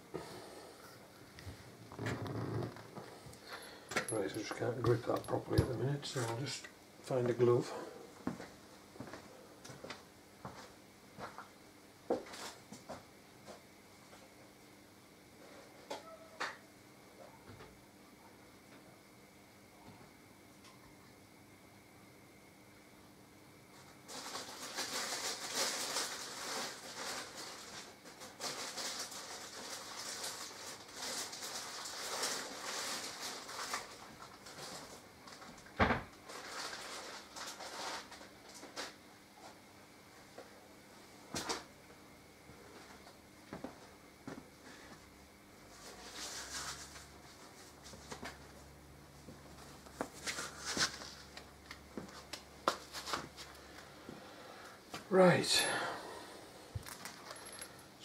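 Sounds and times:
rustling and crinkling: 0:01.2 - 0:06.6, 0:12.1 - 0:14.3, 0:23.7 - 0:40.6, 0:45.6 - 0:54.3, 0:56.7 - 0:57.8
steady low hum: 0:39.0 - 0:58.0.

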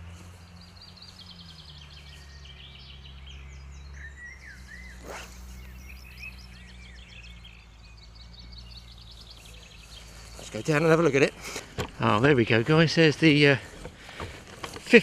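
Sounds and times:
songbirds chirping and trilling: 0:00.0 - 0:15.0
brief whoosh: 0:04.8 - 0:06.0.

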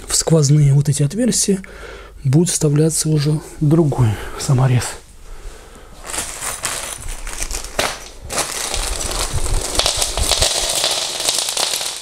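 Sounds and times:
plastic bag crinkling: 0:06.0 - 0:12.0.

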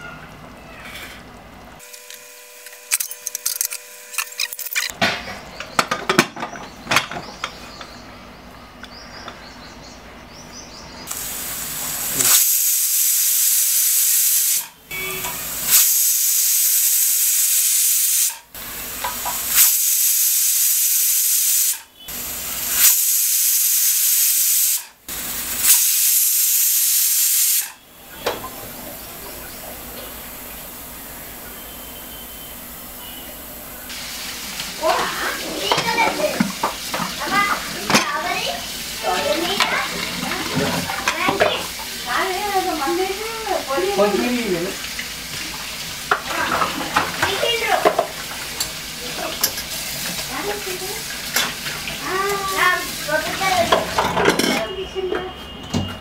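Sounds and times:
pressure cooker whistling: 0:11.1 - 0:28.5, 0:31.4 - 0:33.6.

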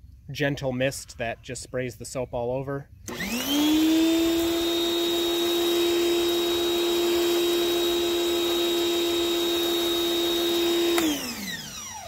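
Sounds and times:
pressure washer motor whine: 0:03.1 - 0:12.0.

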